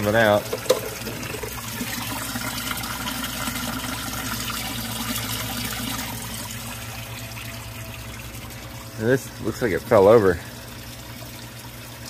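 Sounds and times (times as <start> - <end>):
water trickling into tank: 0.0 - 12.0
steady low hum: 1.2 - 12.0.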